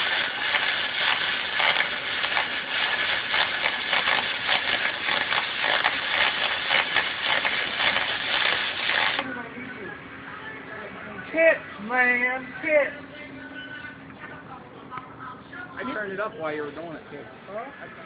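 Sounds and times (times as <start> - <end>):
welding arc crackling: 0.0 - 9.4.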